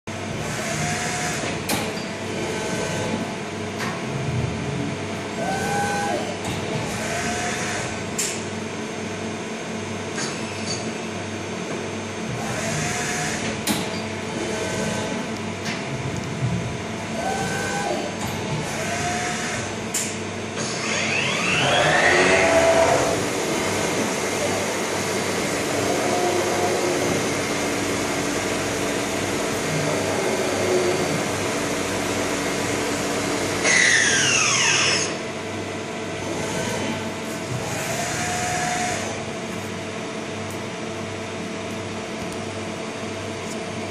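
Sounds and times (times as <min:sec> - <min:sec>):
cnc machine motor whines: 0:00.1 - 0:08.4, 0:12.3 - 0:16.2, 0:16.8 - 0:39.4
machine whine falling in pitch: 0:20.8 - 0:23.2.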